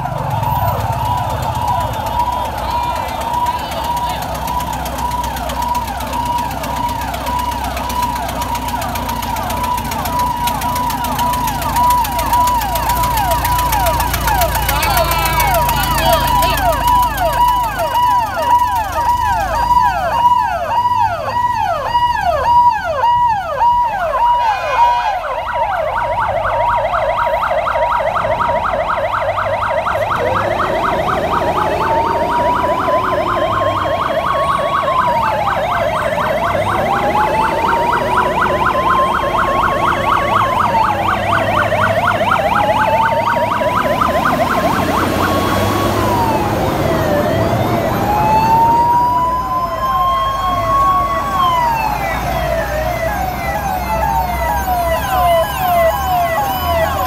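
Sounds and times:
fire engine sirens yelping and warbling: 0.0s - 57.0s
slow wailing siren: 0.0s - 57.0s.

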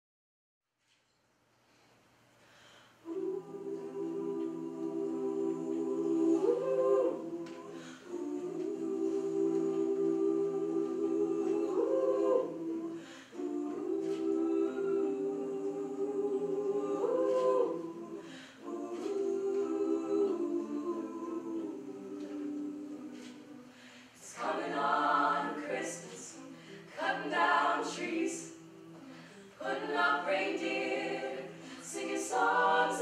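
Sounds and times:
a cappella group humming chords: 2.4s - 33.0s.

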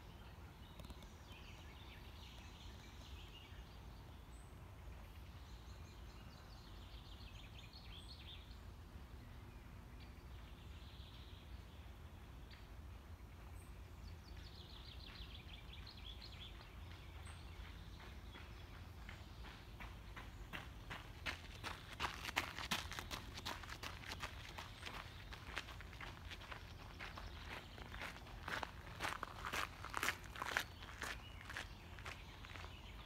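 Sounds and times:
small birds chirping: 0.6s - 4.4s, 14.1s - 33.0s.

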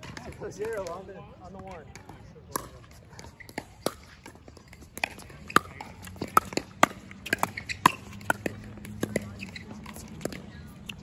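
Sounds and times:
paddles striking pickleball: 1.9s - 11.0s.

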